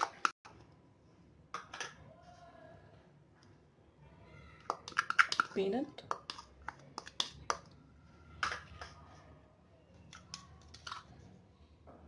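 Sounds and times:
kitchen bowls clicking and tapping: 0.0 - 0.6, 1.5 - 2.0, 4.6 - 7.8, 8.4 - 9.0, 10.1 - 11.2.

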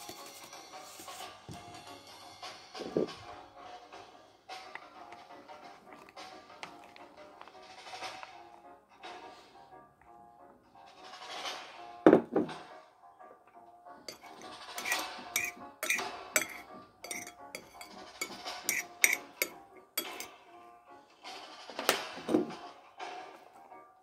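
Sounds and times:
background music: 0.0 - 24.0
utensils clattering against dishes: 14.1 - 20.4.

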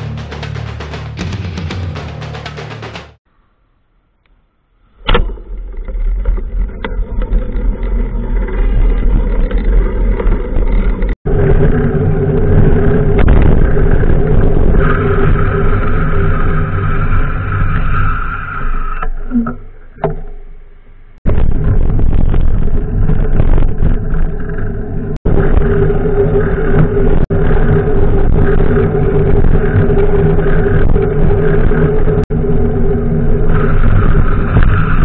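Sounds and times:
bicycle riding rumble: 5.2 - 18.9, 21.3 - 35.0.

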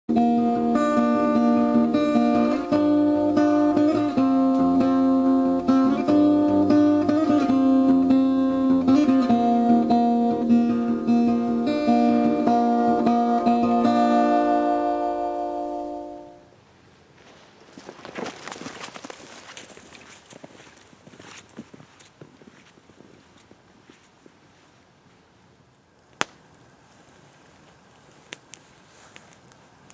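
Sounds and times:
acoustic guitar music: 0.1 - 16.5.

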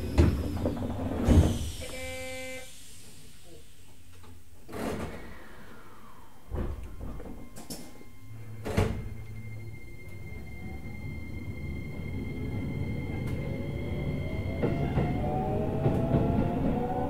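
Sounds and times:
train running rumble: 5.8 - 17.0.

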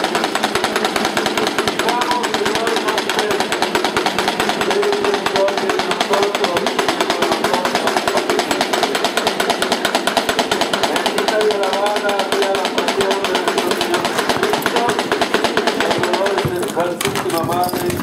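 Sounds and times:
fast mechanical rattle: 0.0 - 18.0
faint voices: 10.8 - 18.0.

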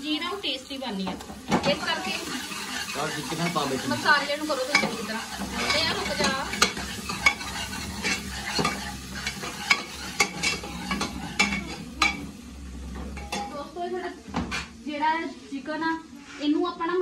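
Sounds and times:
curry sizzling: 0.0 - 15.9
metal ladle scraping pot: 1.7 - 12.2.

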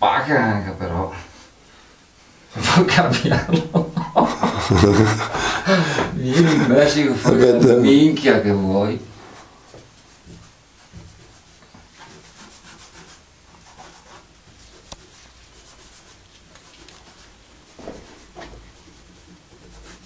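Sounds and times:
drawing tool scratching on wall: 9.2 - 20.0.

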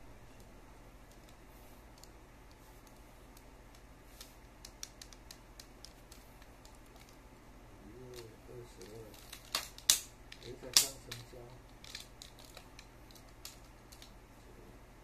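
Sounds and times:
plastic toy parts clicking: 8.1 - 14.2.

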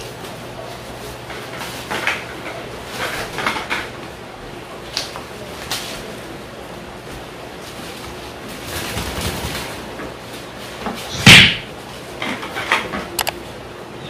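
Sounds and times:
plastic bag rustling: 7.0 - 11.1.

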